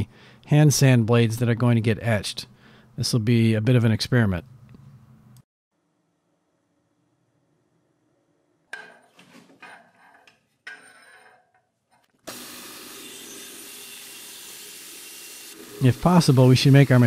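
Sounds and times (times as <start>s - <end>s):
bandsaw cutting wood: 12.2s - 17.0s.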